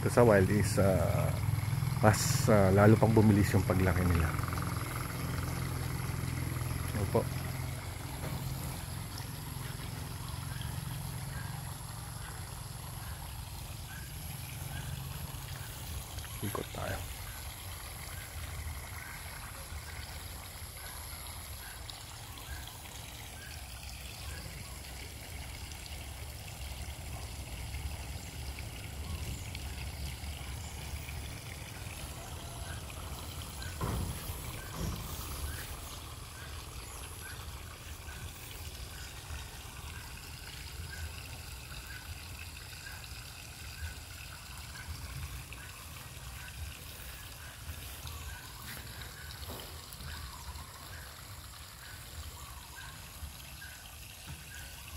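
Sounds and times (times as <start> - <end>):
water trickling: 0.0 - 54.9.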